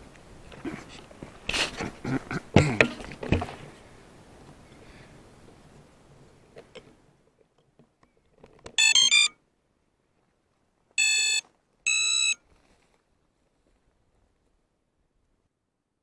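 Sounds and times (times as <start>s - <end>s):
drone motor start-up tones: 8.8s - 9.3s, 11.0s - 12.4s
long steady beeps: 8.8s - 9.3s, 11.0s - 12.4s.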